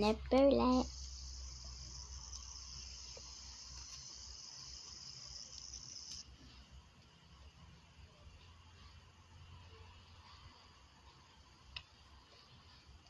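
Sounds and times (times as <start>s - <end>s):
cricket trilling: 0.7s - 6.2s.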